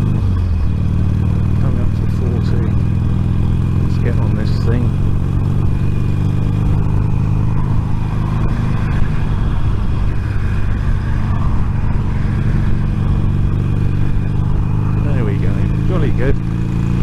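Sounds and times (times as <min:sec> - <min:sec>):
motorcycle engine drone: 0:00.0 - 0:17.0
wind rush in helmet: 0:06.6 - 0:15.0.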